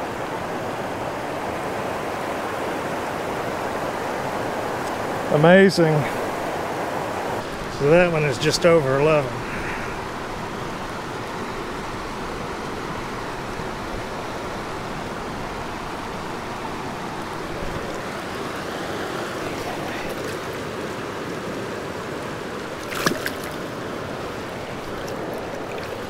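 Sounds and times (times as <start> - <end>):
stream water rushing: 0.0 - 26.0
fish splashing into water: 22.6 - 23.7, 24.6 - 26.0.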